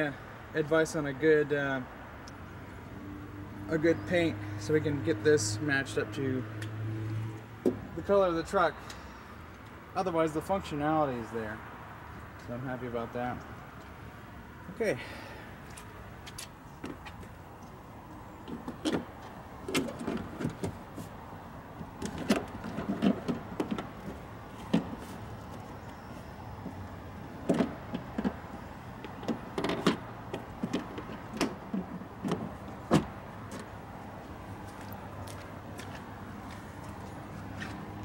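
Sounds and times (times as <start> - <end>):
clunks and rattles of car door: 18.4 - 21.0, 29.1 - 33.7.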